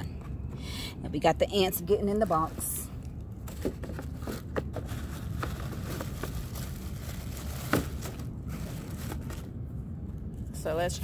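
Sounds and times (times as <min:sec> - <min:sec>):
low steady rumble: 0:00.0 - 0:11.0
wrapping rustling and crinkling: 0:02.2 - 0:09.5.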